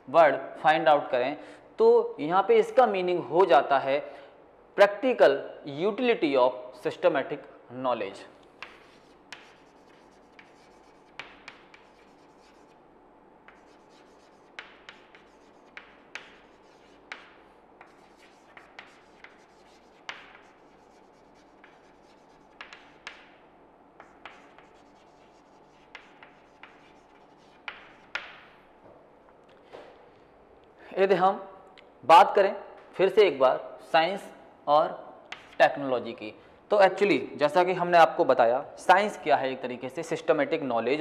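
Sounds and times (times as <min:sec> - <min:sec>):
chalk writing on a chalkboard: 0:08.6 - 0:12.8, 0:13.5 - 0:23.4, 0:24.0 - 0:28.5, 0:35.3 - 0:35.6.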